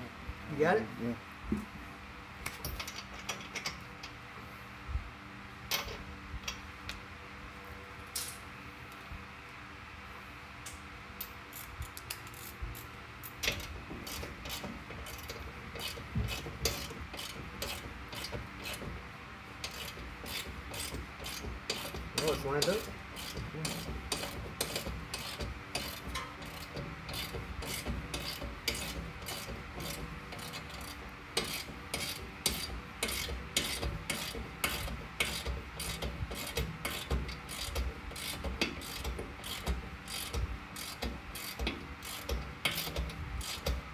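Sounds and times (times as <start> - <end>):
ratchet wrench clicking: 11.2 - 18.8, 19.6 - 43.8.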